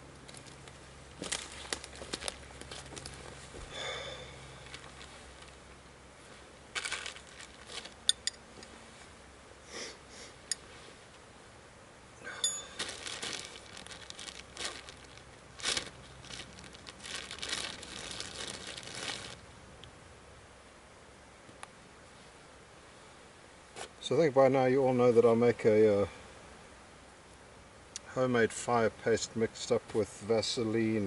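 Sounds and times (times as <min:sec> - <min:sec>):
dry twigs rustling: 0:00.0 - 0:08.4, 0:12.3 - 0:19.5
plastic bag crinkling: 0:00.2 - 0:05.7, 0:06.7 - 0:08.3, 0:12.3 - 0:19.5.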